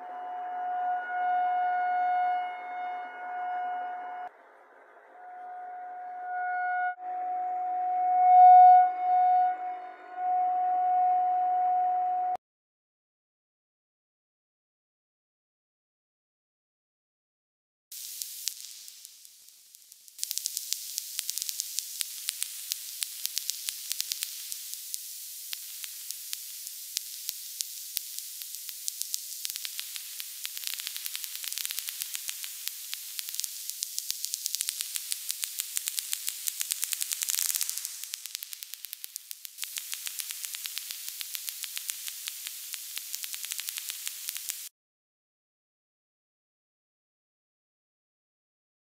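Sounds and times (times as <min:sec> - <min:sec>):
hissing static with sharp clicks: 0:17.9 - 0:44.7.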